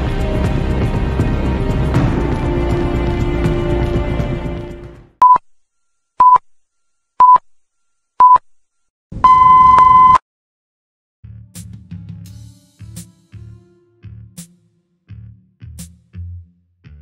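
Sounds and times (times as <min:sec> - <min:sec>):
countdown beeps: 0:09.3 - 0:10.2.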